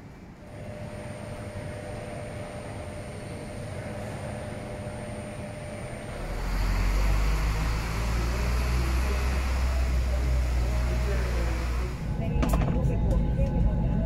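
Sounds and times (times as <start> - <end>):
faint constant hum: 0.0 - 6.2, 8.2 - 14.0
faint voices: 0.5 - 14.0
deep steady rumble: 5.9 - 14.0.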